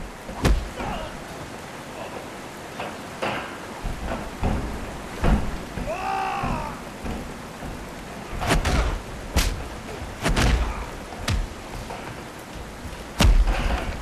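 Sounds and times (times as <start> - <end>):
falling water hiss: 0.0 - 14.0
punch impacts: 0.3 - 0.8, 8.4 - 11.5, 13.2 - 13.8
strained groan: 3.9 - 12.1.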